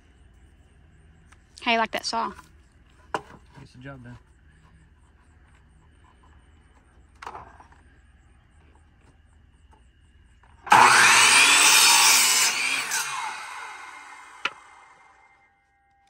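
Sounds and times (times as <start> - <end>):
miter saw cutting board: 10.6 - 15.4.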